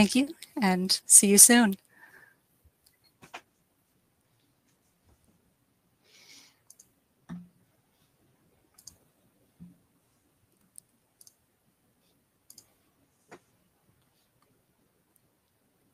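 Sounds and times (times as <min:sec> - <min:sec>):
faint sharp clicks: 0:06.6 - 0:07.0, 0:08.7 - 0:09.0, 0:12.5 - 0:12.7.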